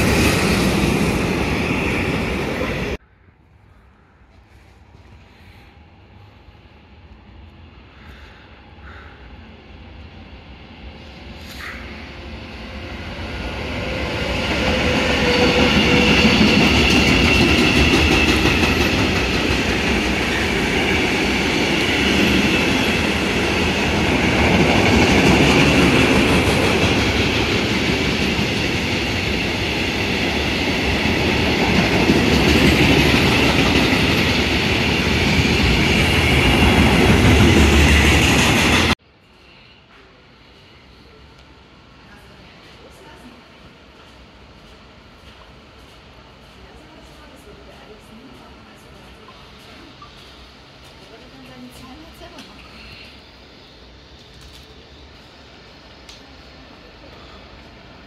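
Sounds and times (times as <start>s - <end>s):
freight train rolling past: 0.0s - 3.1s, 6.0s - 58.0s.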